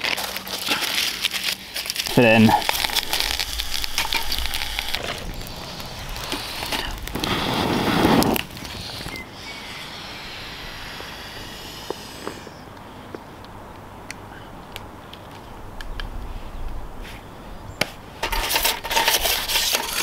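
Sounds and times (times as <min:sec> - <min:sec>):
scraping rustle: 0:00.0 - 0:09.2, 0:18.2 - 0:20.0
twig fire crackling: 0:00.0 - 0:16.3
steady hiss: 0:01.6 - 0:13.0.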